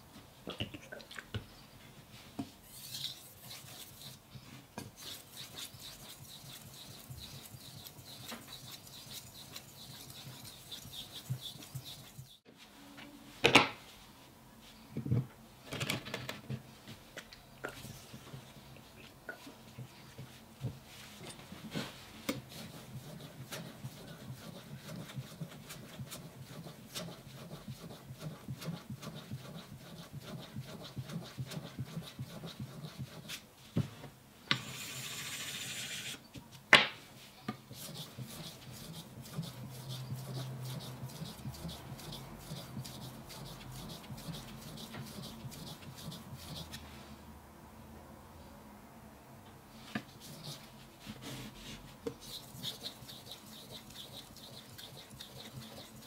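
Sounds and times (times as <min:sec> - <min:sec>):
knife rasping on whetstone: 0:02.7 - 0:04.2, 0:05.0 - 0:12.4, 0:37.8 - 0:46.8, 0:52.2 - 0:56.0.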